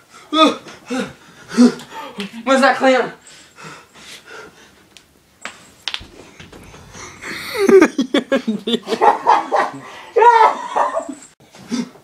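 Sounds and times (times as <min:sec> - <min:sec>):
faint rustling: 0:05.5 - 0:08.6
sharp knocks: 0:05.9 - 0:08.0.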